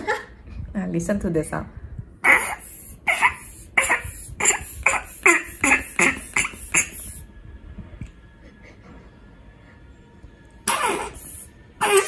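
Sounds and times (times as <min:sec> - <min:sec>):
slime toy squelchy fart noises: 0:02.2 - 0:07.2, 0:10.7 - 0:12.0.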